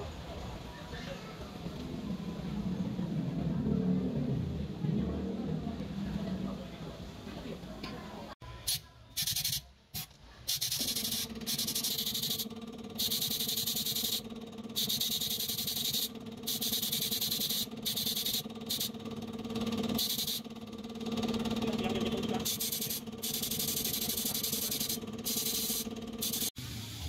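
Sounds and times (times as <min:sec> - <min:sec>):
electric motor tool humming: 0:21.2 - 0:26.6
harsh grinding hiss: 0:22.4 - 0:27.0.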